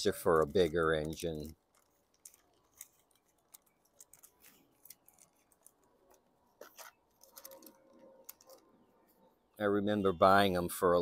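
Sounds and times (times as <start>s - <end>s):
plastic bag crinkling: 0.0s - 8.9s
small plastic parts clicking: 0.1s - 8.8s.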